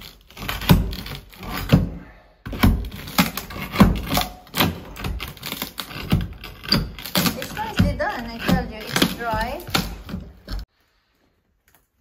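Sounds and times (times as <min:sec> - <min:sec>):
shovel scraping concrete rubble: 0:02.6 - 0:10.7.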